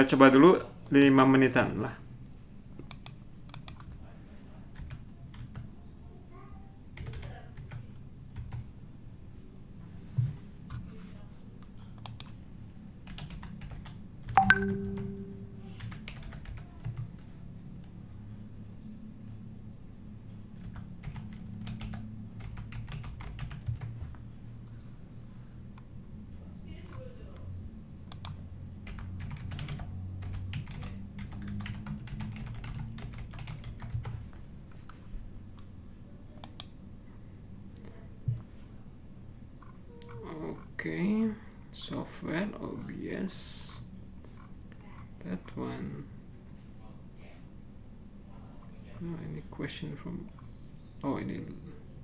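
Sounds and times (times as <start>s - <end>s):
laptop keyboard typing: 2.9s - 4.0s, 4.7s - 5.7s, 7.0s - 8.7s, 13.0s - 17.3s, 20.6s - 24.1s, 28.1s - 34.3s.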